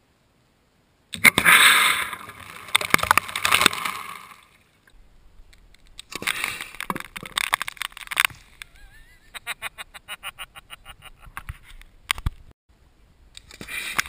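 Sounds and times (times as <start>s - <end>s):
water splashing: 1.2s - 11.1s.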